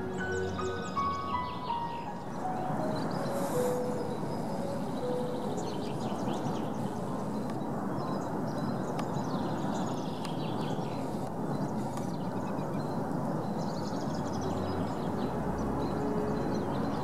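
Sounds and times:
low rushing background: 0.0 - 7.4
soft held musical notes: 0.0 - 7.6
small birds chirping: 0.0 - 17.0.

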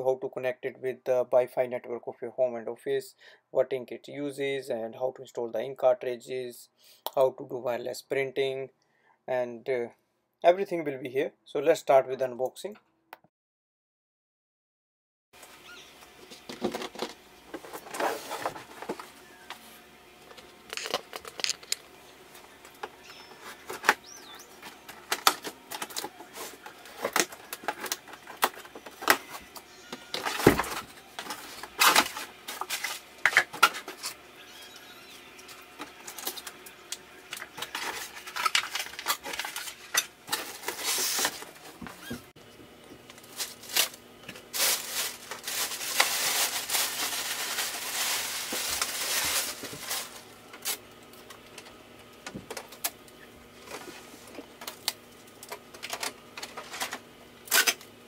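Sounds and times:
cardboard and foam handling: 16.3 - 19.2, 43.2 - 50.3.

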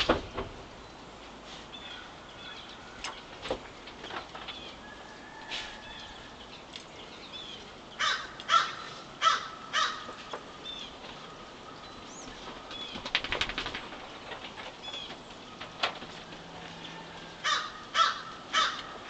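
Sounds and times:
small birds chirping: 0.2 - 19.0
crow cawing: 8.0 - 10.2, 17.4 - 19.0.

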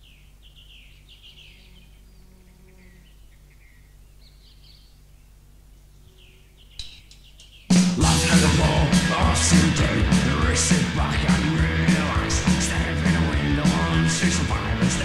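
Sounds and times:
faint birds chirping: 0.0 - 8.8
low hum: 8.0 - 15.0.

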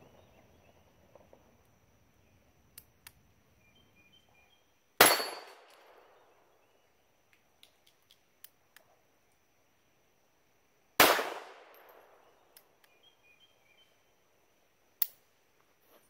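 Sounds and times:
pistol shot: 5.0 - 6.2, 11.0 - 12.4
faint clicks: 7.3 - 9.4.

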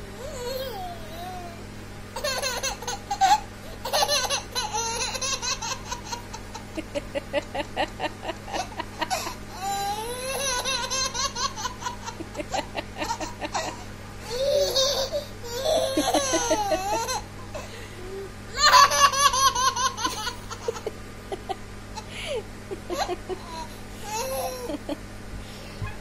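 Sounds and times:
baby laughing: 2.2 - 7.5, 8.3 - 17.3, 18.5 - 21.0, 22.0 - 25.0.

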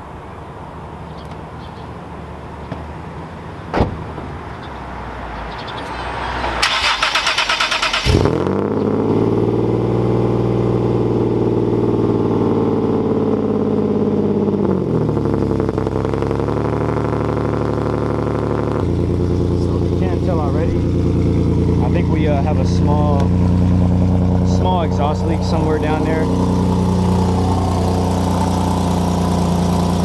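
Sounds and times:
car engine idling: 0.0 - 30.0
starter motor cranking: 6.6 - 8.3.

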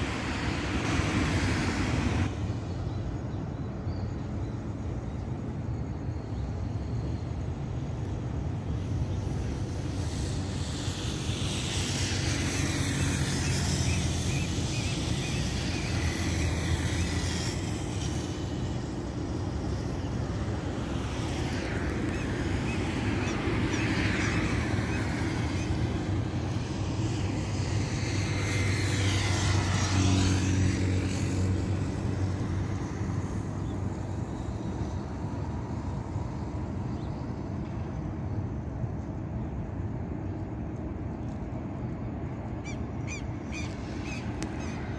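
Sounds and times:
cars passing: 0.0 - 2.8, 9.6 - 36.8, 39.6 - 44.9
steady traffic hum: 0.0 - 44.9.

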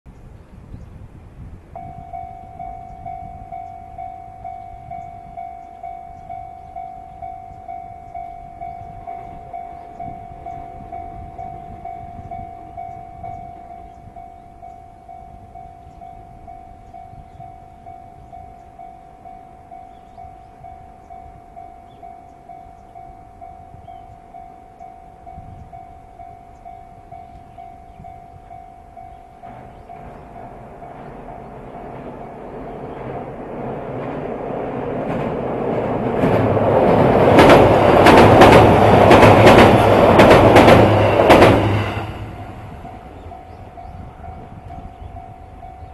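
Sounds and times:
level crossing warning bell: 1.7 - 45.9.

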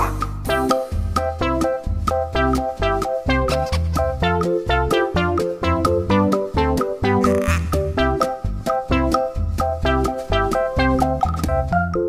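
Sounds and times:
bright keyboard tune with bass: 0.0 - 12.0.

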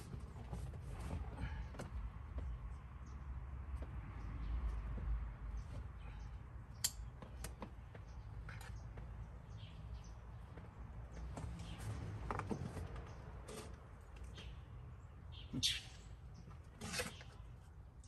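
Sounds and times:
clicks and rustles of seat cover: 11.3 - 14.4.

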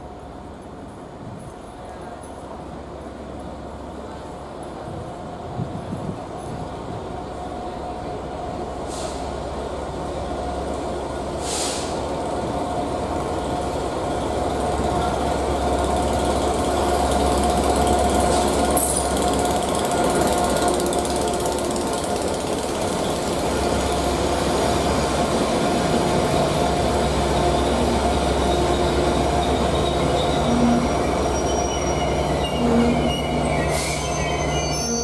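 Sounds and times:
diesel locomotive engine drone: 0.0 - 35.0
train wheels on rails: 0.0 - 35.0
short hisses: 8.9 - 9.3, 11.4 - 12.0.

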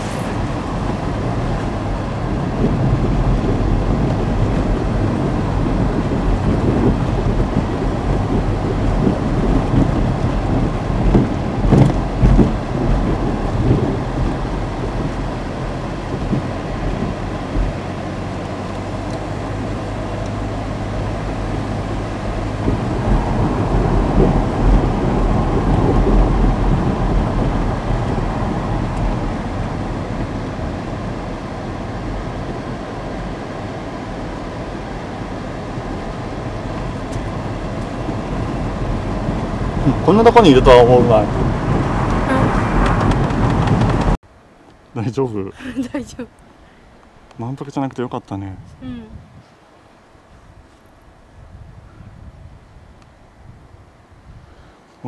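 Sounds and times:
loud low rumbling: 0.0 - 44.2
sharp bumps: 41.3 - 44.2.

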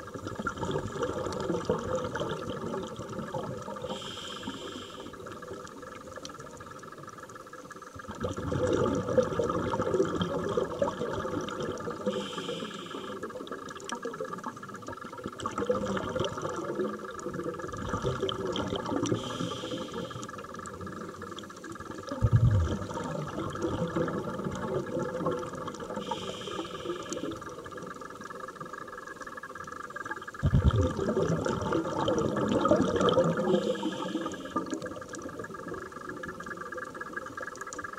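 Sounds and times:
exhaled bubbles burbling: 0.0 - 7.0, 8.0 - 28.9, 30.0 - 37.8
regulator inhale hiss: 3.8 - 5.4, 12.0 - 13.4, 19.1 - 20.6, 25.9 - 27.6, 33.4 - 34.9.

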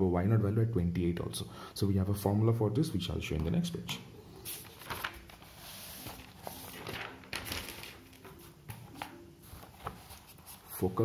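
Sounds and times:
notebook rustling and page turning: 4.4 - 11.0.

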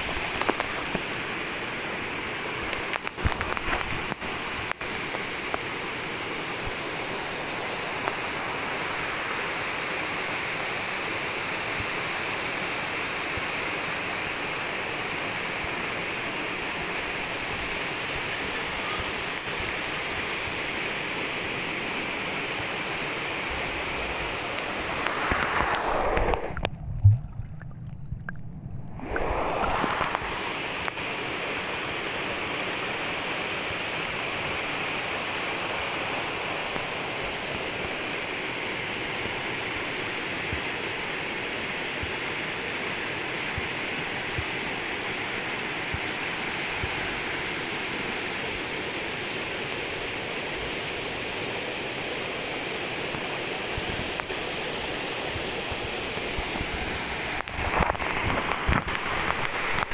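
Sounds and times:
waterfall rushing: 0.0 - 26.7, 29.0 - 59.9
water splashing: 24.6 - 31.0
low underwater thump: 26.6 - 28.9.

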